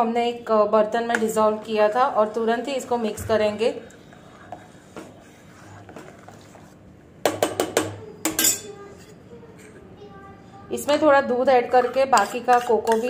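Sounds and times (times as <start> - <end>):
spoon stirring in metal pot: 1.0 - 9.9, 10.8 - 13.0
spoon clinking against steel: 8.3 - 8.8.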